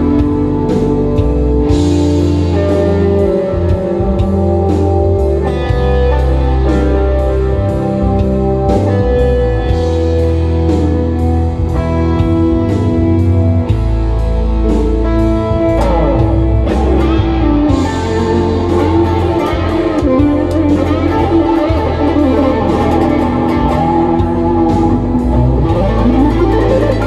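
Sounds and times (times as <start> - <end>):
bass: 0.0 - 27.0
electric guitar lead: 0.0 - 27.0
drum beat: 16.7 - 27.0.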